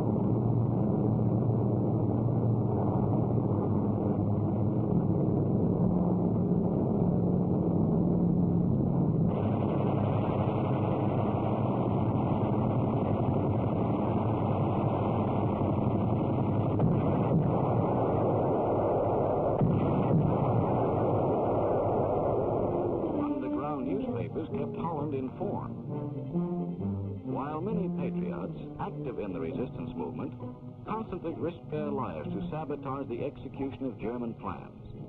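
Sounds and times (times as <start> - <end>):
bomber aircraft engines droning: 0.0 - 35.0
low hum: 0.0 - 35.0
dull thuds of bomb bursts: 9.3 - 23.4.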